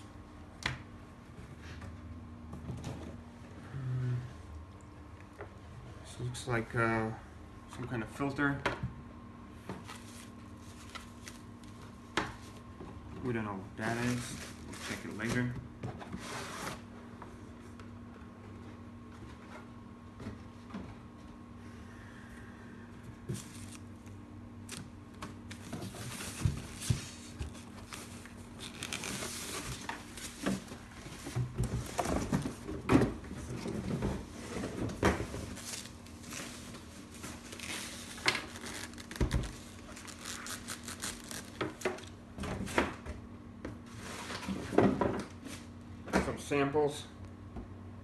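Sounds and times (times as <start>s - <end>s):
cardboard inserts being handled: 25.3s - 42.1s
plastic bag crinkling: 25.6s - 30.4s, 37.4s - 41.7s.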